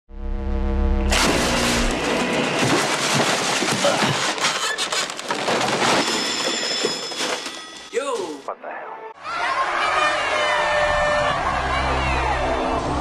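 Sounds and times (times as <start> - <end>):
amplifier hum: 0.1 - 1.9
distorted electric guitar chord: 0.1 - 1.9
objects crashing and clattering: 1.1 - 7.9.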